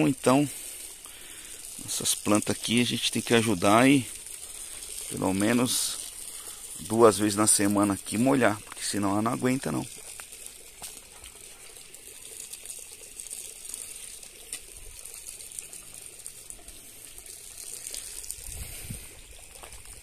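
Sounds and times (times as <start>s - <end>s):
hose spraying water: 0.0s - 20.0s.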